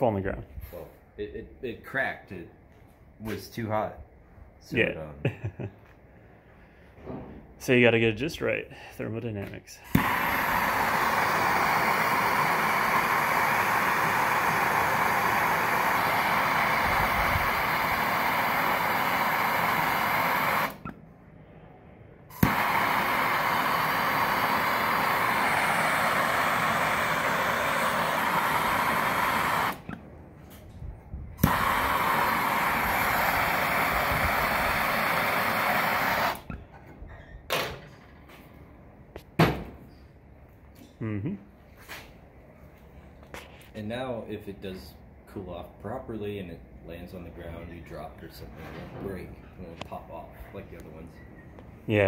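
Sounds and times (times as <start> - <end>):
gas torch flame hissing: 9.8 - 20.9, 22.2 - 30.0, 31.3 - 36.6
torch ignition click: 9.9 - 21.0, 22.3 - 30.0, 31.4 - 36.6.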